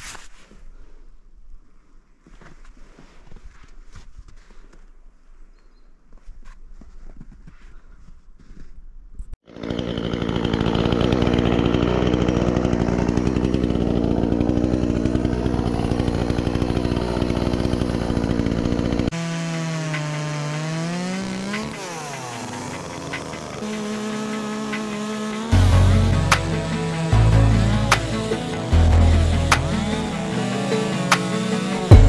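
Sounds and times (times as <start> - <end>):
chainsaw running at high revs: 9.4 - 32.0.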